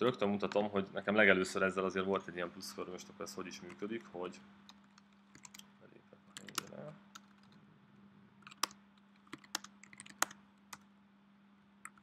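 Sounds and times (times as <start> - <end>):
steady low hum: 0.0 - 12.0
computer keyboard typing: 4.7 - 5.7, 6.3 - 7.6, 8.4 - 10.8.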